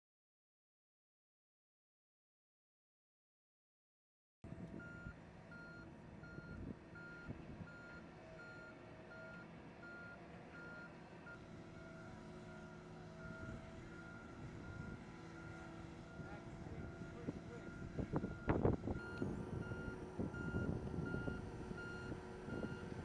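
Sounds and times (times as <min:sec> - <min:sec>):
low engine drone: 0:04.5 - 0:23.0
vehicle warning beeper: 0:04.8 - 0:23.0.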